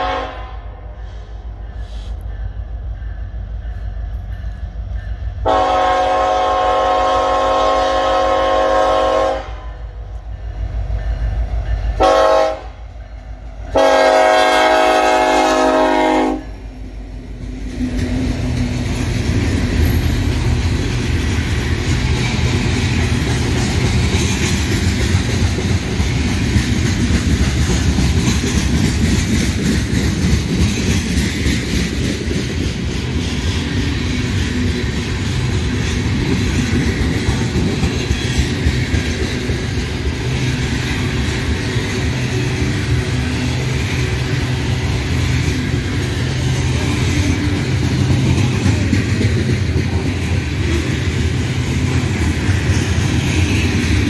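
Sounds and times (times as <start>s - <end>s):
locomotive horn blasts: 0.0s - 0.7s, 5.4s - 9.8s, 12.0s - 12.8s, 13.8s - 16.5s
train cars rumbling and rattling: 0.0s - 54.0s
wheels clicking over rail joints: 17.3s - 54.0s.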